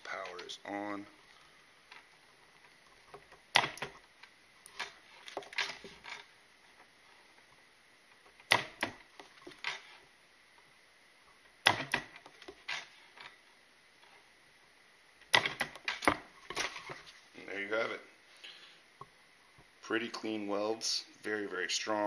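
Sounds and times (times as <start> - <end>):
spot welder snapping: 3.5 - 4.0, 8.4 - 9.0, 11.6 - 12.8, 15.2 - 16.7.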